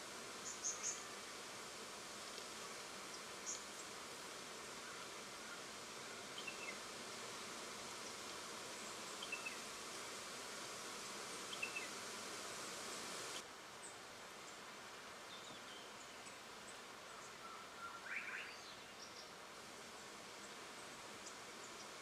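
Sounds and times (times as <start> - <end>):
high insect buzzing: 0.0 - 13.4
faint bird chirps: 9.2 - 9.6, 11.5 - 11.9, 17.0 - 19.4.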